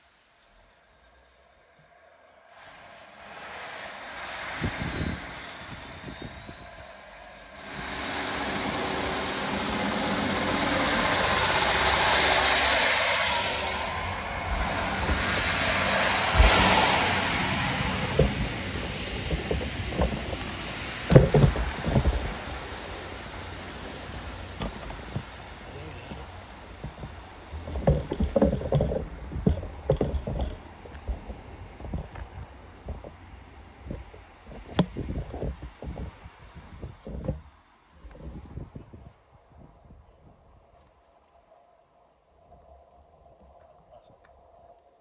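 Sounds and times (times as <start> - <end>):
diesel train engine drone and whine: 0.0 - 36.8
train wheels rumbling: 0.0 - 37.5
thumps: 21.1 - 22.4, 26.1 - 33.2.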